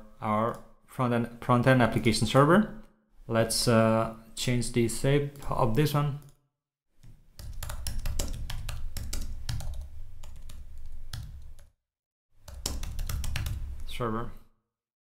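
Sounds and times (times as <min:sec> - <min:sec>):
typing on a computer keyboard: 0:07.0 - 0:11.7, 0:12.4 - 0:13.8.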